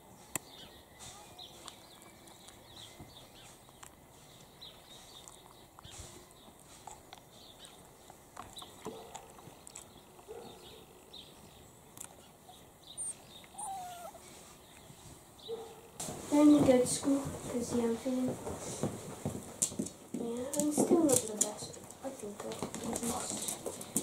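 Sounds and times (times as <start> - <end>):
puppies rustling on blankets: 1.0 - 8.3, 13.0 - 24.0.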